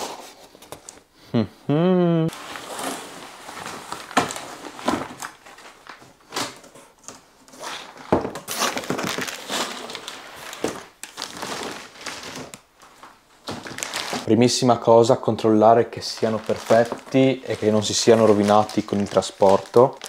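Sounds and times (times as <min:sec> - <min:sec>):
plastic film crinkling: 0:02.3 - 0:06.6, 0:07.8 - 0:14.3, 0:15.9 - 0:20.0
cardboard scraping: 0:02.4 - 0:05.9.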